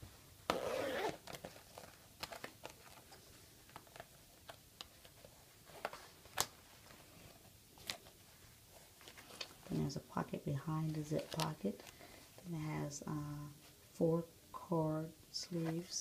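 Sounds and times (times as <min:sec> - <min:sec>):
zip pocket clicks and rubbing: 0:00.5 - 0:03.1.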